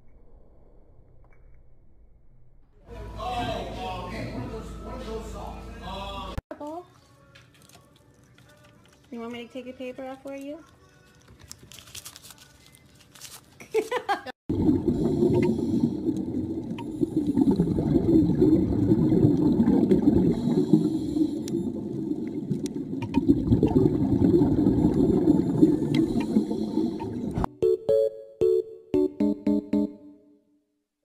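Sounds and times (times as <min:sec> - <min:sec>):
muffled water gurgling underwater: 0:14.5 - 0:27.5.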